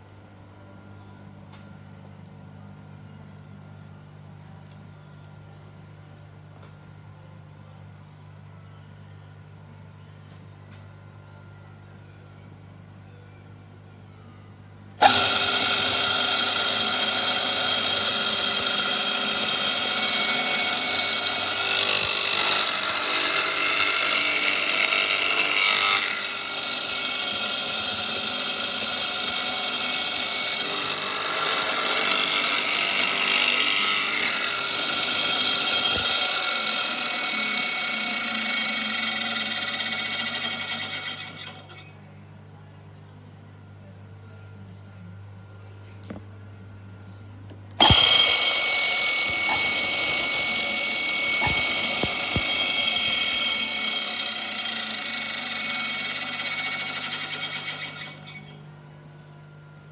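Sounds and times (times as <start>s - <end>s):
mortiser machine whining: 15.0s - 42.0s, 47.7s - 58.6s.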